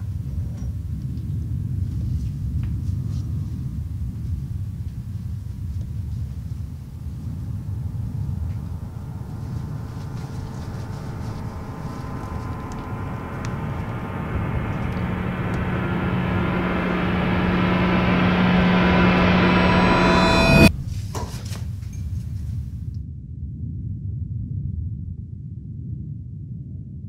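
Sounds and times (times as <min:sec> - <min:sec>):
low rumbling suspense drone: 0:00.8 - 0:21.6.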